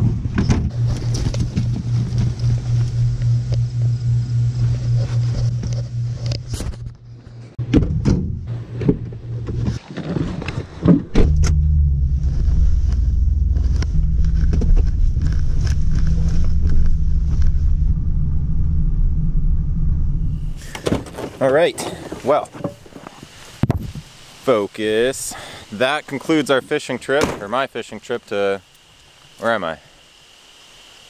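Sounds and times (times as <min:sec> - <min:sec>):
truck engine humming: 0:00.7 - 0:09.8, 0:11.1 - 0:20.8
car door shutting: 0:10.8 - 0:17.4, 0:20.6 - 0:21.4
truck driving rumble from cab: 0:11.0 - 0:20.9.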